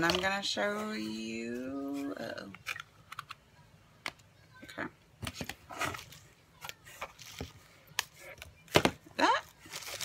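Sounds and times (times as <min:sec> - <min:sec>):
bubble wrap rustling: 0:09.2 - 0:10.0.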